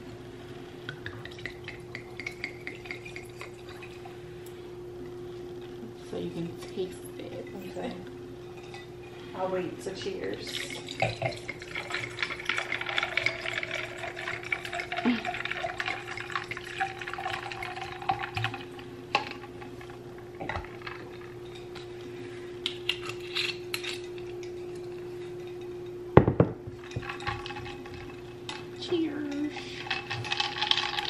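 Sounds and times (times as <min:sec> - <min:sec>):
wine pouring into glass: 0:10.5 - 0:18.8.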